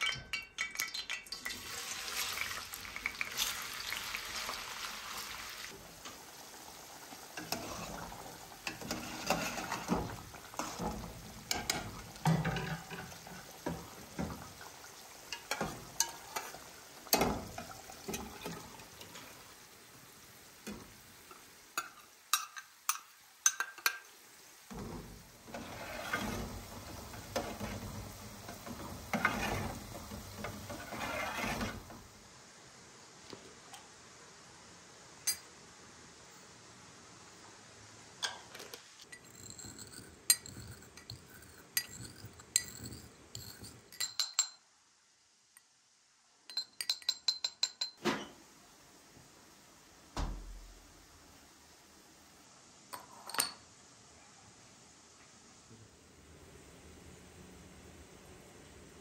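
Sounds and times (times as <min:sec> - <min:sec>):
potatoes sizzling in hot oil: 0:00.8 - 0:33.2.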